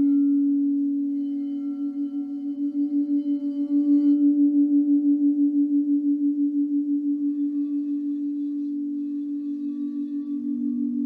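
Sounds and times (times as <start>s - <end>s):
higher-pitched singing bowl: 0.0s - 11.0s
low singing bowl ringing: 0.0s - 11.0s.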